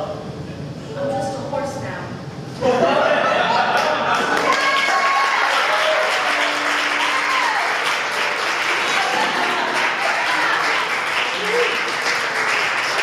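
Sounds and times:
audience applauding: 3.7 - 13.0.

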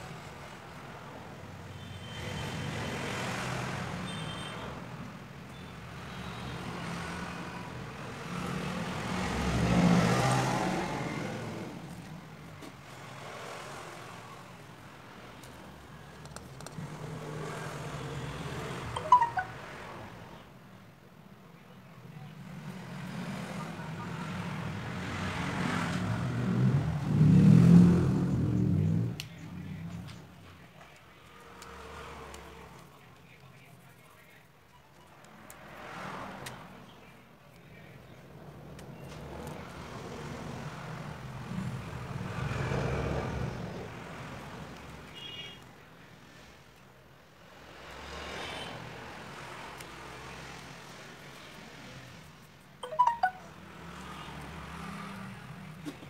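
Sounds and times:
vehicle passing by: 6.8 - 11.8, 22.5 - 30.1
short high beep: 19.0 - 19.6, 52.8 - 53.5.

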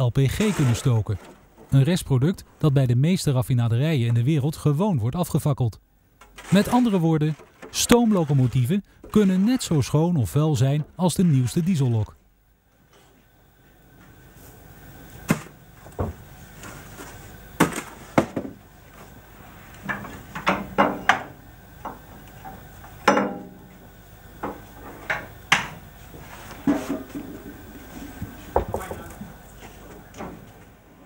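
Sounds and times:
shovel scraping and clanking on metal: 0.2 - 1.5, 6.2 - 12.0.

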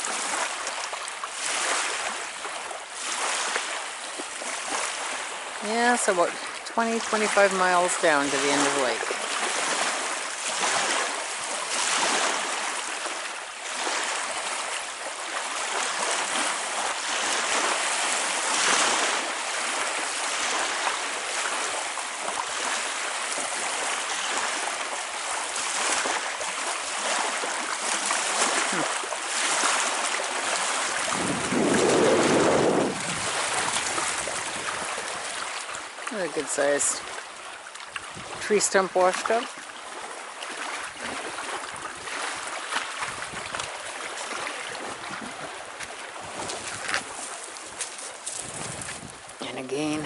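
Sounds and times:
waves lapping on shore: 0.0 - 50.0
wind buffeting microphone: 30.5 - 35.5, 38.0 - 38.5, 40.9 - 47.3, 48.2 - 50.0.

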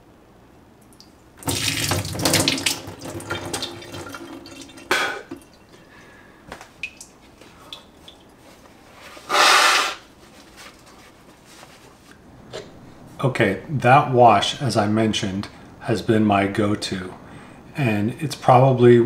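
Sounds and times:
nose blowing into paper towel: 9.1 - 10.2
water snorted through nose: 9.3 - 10.0.

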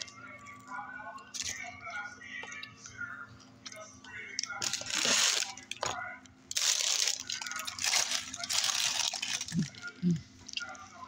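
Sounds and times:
packaging rustling and crinkling: 6.5 - 10.0.

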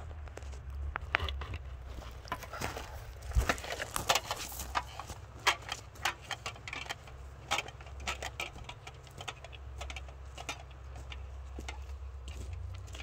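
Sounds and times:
boots crunching on forest debris: 1.7 - 6.4, 8.5 - 13.0.

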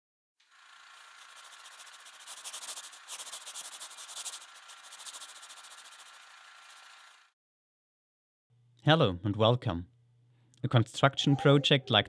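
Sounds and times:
stylus scratching paper: 0.6 - 7.0.

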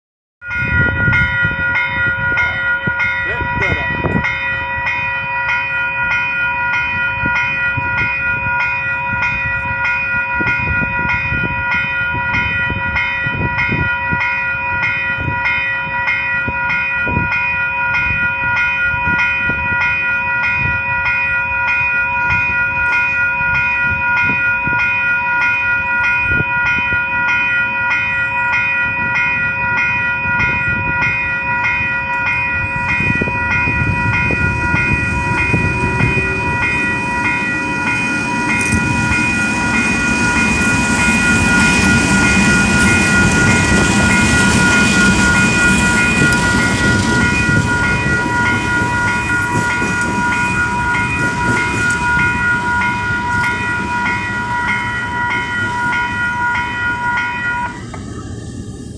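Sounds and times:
level crossing bell ringing: 0.4 - 57.9
diesel locomotive rumble: 28.0 - 58.9.

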